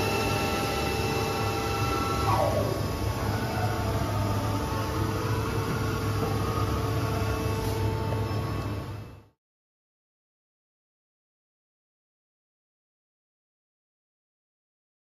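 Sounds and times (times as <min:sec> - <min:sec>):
lathe spindle whine: 0:00.0 - 0:09.3
machine low hum: 0:00.0 - 0:09.4.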